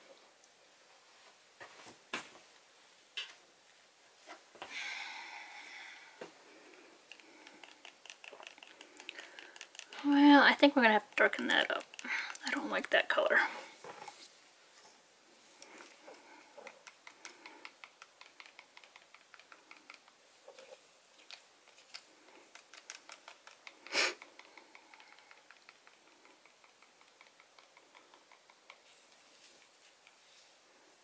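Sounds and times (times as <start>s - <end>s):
stick clicking and scraping cup: 6.7s - 13.2s, 15.6s - 20.2s, 21.2s - 30.2s.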